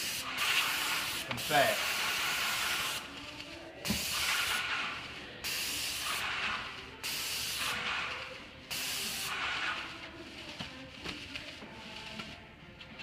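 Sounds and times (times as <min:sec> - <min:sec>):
paint roller hissing: 0:00.0 - 0:12.4.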